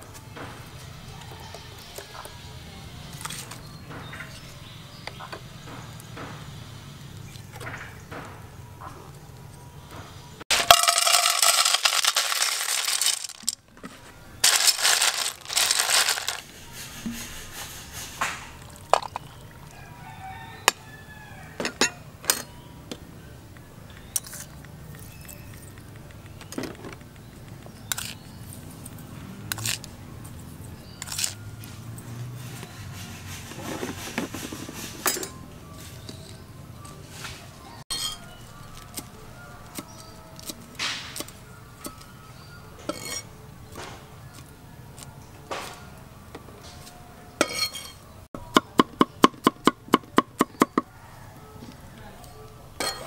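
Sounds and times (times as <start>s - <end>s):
light music: 8.4s - 26.4s, 34.6s - 53.0s
metal spoon clinking on pot: 37.9s - 38.4s, 42.9s - 43.3s, 47.4s - 48.0s, 52.8s - 53.0s.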